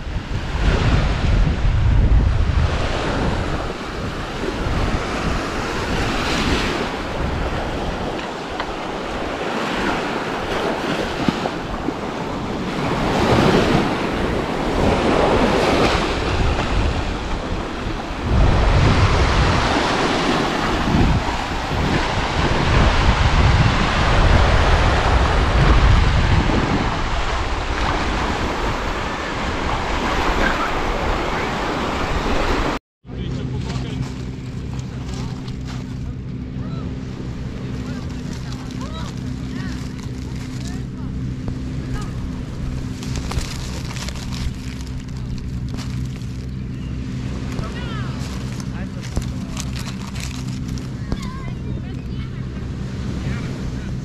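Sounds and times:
wind buffeting microphone: 0:00.0 - 0:32.8
waves breaking on a beach: 0:00.0 - 0:54.0.

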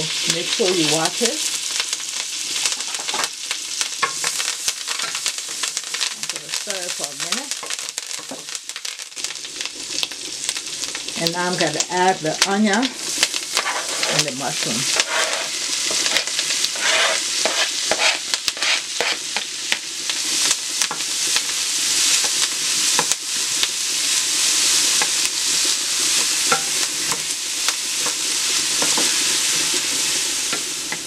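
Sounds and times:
vegetables sizzling in a pan: 0:00.0 - 0:31.0
wooden spoon scraping a pan: 0:04.0 - 0:06.9, 0:12.4 - 0:19.8, 0:28.0 - 0:31.0.

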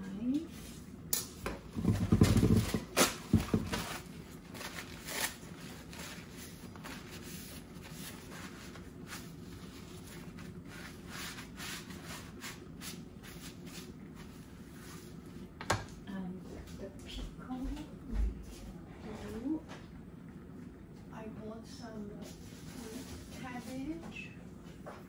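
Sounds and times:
steady low hum: 0:00.0 - 0:25.0
paper towel wiping plastic board: 0:01.8 - 0:15.2.

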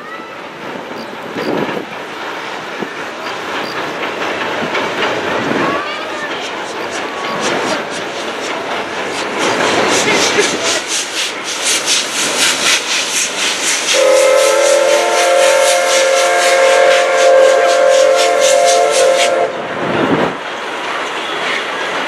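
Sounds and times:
steam locomotive exhaust beating: 0:00.0 - 0:22.0
steam whistle blast: 0:13.9 - 0:19.6.

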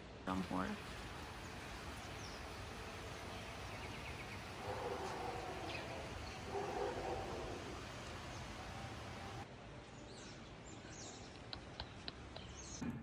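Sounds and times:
faint steady hiss: 0:00.0 - 0:10.2
distant pitched bird calls: 0:00.8 - 0:09.4
bird chirps: 0:01.4 - 0:09.4.

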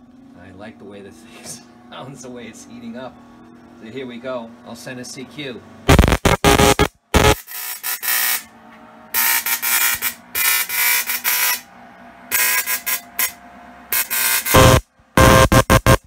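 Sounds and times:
spark gap morse buzzing: 0:05.9 - 0:08.4, 0:09.2 - 0:11.7, 0:12.3 - 0:16.0.

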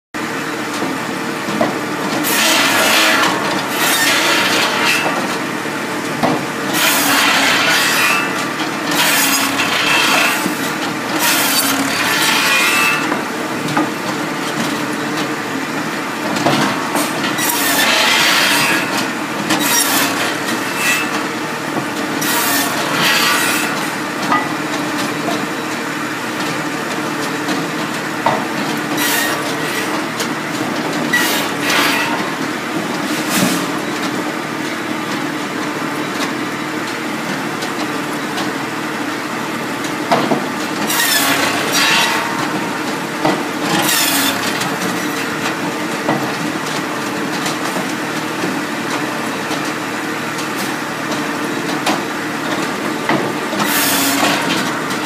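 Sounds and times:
saw blade rasping through log: 0:02.2 - 0:05.2, 0:06.7 - 0:13.1, 0:17.4 - 0:18.9, 0:19.6 - 0:21.2, 0:22.2 - 0:23.8, 0:40.8 - 0:42.4, 0:43.7 - 0:44.8, 0:53.6 - 0:54.5
firewood saw droning: 0:02.2 - 0:05.4, 0:06.7 - 0:13.4, 0:16.6 - 0:21.4, 0:22.1 - 0:24.0, 0:28.9 - 0:30.1, 0:40.8 - 0:42.6, 0:43.6 - 0:45.4, 0:53.6 - 0:54.8.

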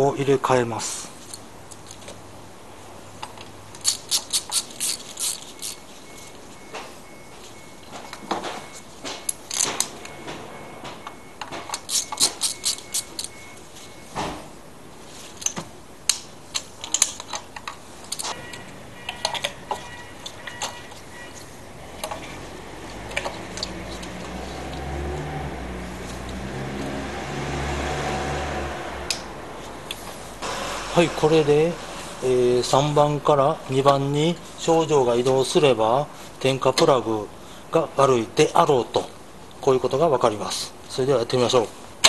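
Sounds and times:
ratchet wrench clicking: 0:03.7 - 0:05.8, 0:11.7 - 0:13.4.

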